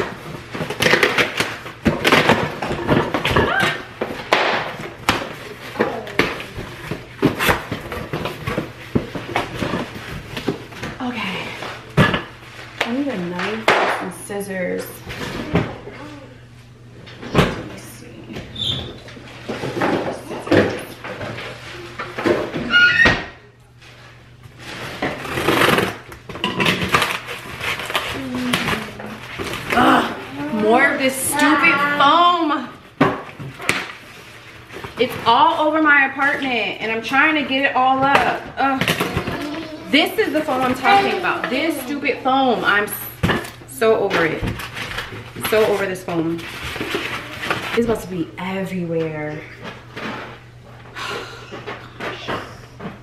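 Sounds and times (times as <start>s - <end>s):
cardboard and packaging rustling: 0.0s - 13.9s, 23.7s - 50.9s.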